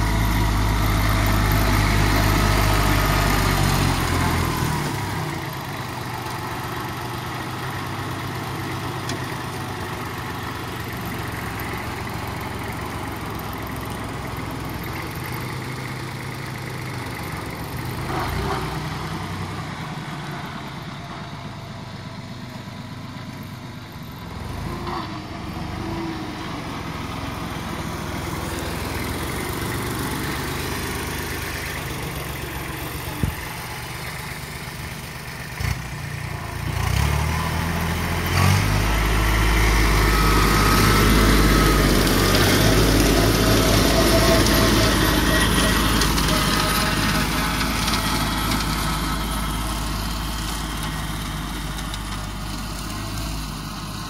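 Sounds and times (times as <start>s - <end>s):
tractor diesel engine running: 0.0s - 54.0s
mulcher cutting plants: 36.6s - 54.0s.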